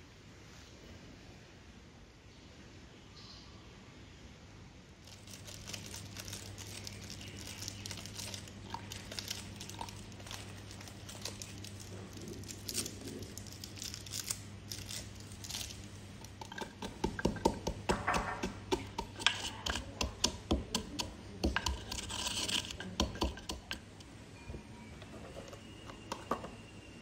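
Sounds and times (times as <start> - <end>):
biscuit packet crinkling: 5.0 - 17.9
pestle crushing biscuits in mortar: 5.0 - 24.1, 25.4 - 26.6.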